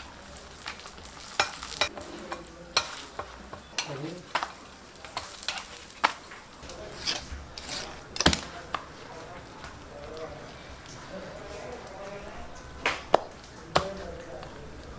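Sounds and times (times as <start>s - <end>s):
metal spatula tapping and scraping: 0.0s - 8.9s
bread sizzling on a griddle: 0.0s - 14.9s.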